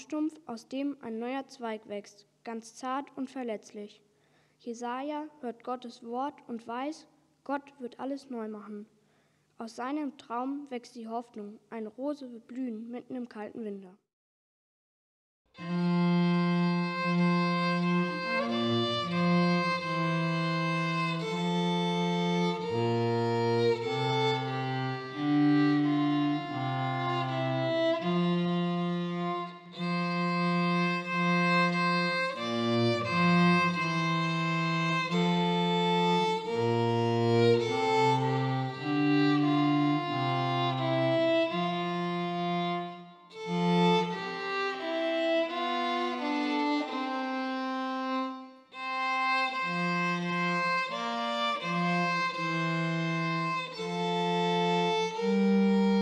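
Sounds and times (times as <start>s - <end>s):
cello playing low line: 15.6s - 56.0s
violin melody: 15.6s - 56.0s.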